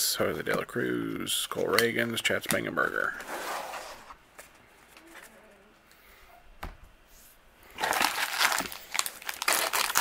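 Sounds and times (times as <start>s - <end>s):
plastic wrapper crinkling: 7.7s - 10.0s.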